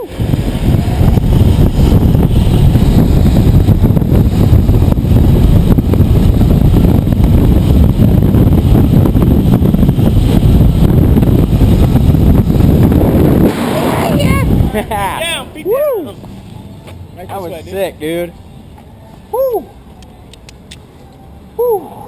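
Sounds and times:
wind buffeting microphone: 0.0s - 16.2s.

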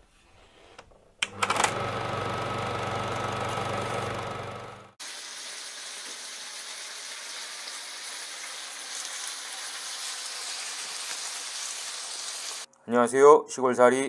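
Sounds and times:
seafood sizzling on a griddle: 5.0s - 12.7s.

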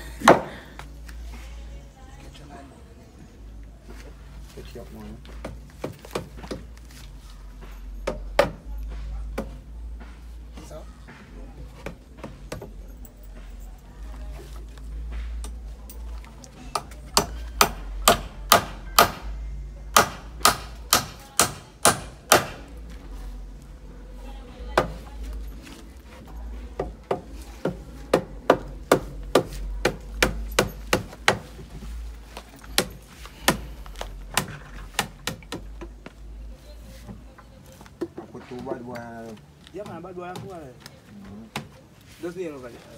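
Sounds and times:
hammer driving nails into wood: 19.9s - 22.6s.

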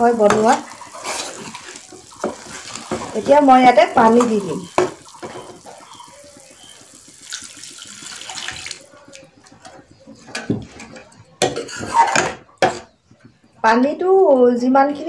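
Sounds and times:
water poured into hot pan: 0.0s - 10.6s
metal spoon scraping pan: 10.4s - 12.9s.

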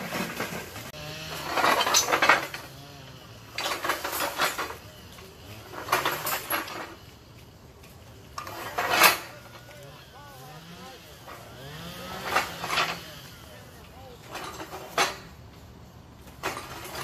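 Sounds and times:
metal gym equipment clanking: 8.4s - 9.5s.

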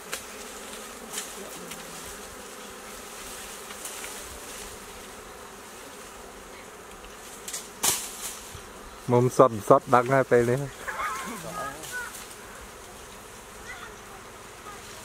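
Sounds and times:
bees buzzing: 0.0s - 15.0s.

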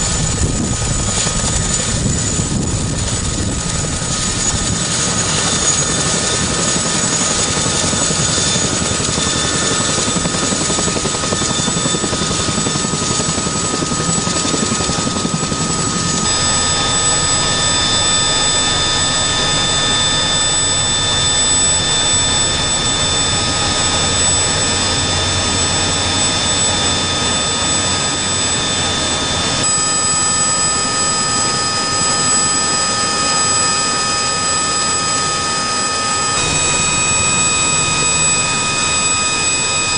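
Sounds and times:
helicopter rotor and engine rush: 0.0s - 39.9s
high whining tones: 0.0s - 39.9s.

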